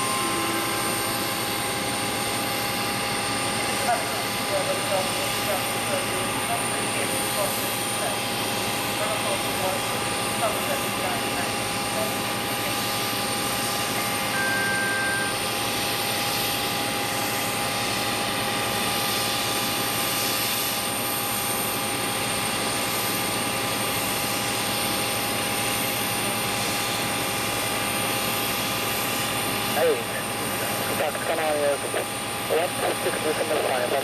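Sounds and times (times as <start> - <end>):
high steady tones: 0.0 - 5.5, 14.2 - 15.6
jet turbine whine: 0.0 - 34.0
short beep: 14.3 - 15.4.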